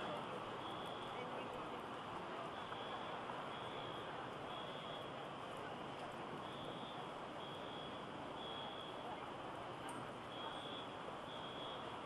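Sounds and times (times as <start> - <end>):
crowd noise: 0.0 - 12.0
traffic: 0.0 - 12.0
faint high beep: 2.5 - 5.1, 6.4 - 9.2, 10.3 - 11.9.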